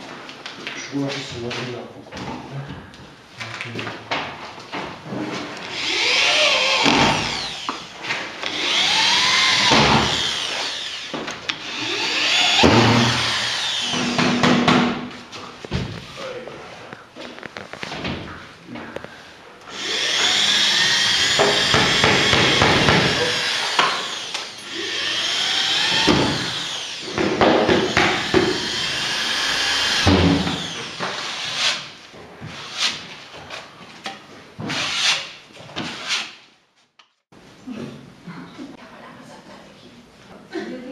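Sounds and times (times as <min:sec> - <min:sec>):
power drill whining: 0:05.7 - 0:14.4, 0:19.7 - 0:31.5.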